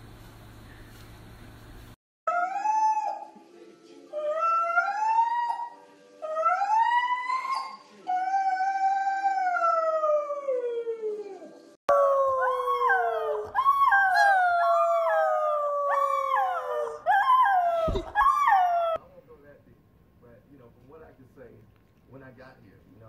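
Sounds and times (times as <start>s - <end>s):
adult husky howling: 2.3s - 3.4s, 4.1s - 19.0s
husky puppy howling: 2.3s - 3.4s, 4.1s - 19.0s.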